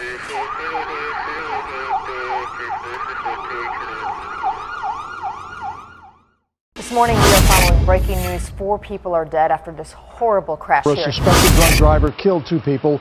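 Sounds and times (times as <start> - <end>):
emergency siren yelping: 0.0 - 6.5.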